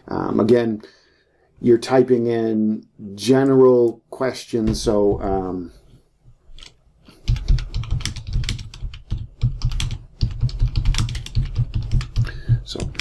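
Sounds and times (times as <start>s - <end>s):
typing on computer keyboard: 6.6s - 13.0s.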